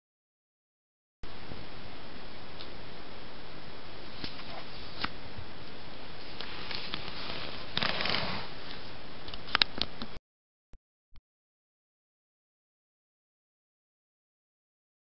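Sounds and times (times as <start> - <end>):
steady hiss: 1.3 - 10.2
fabric rustling: 6.2 - 8.9.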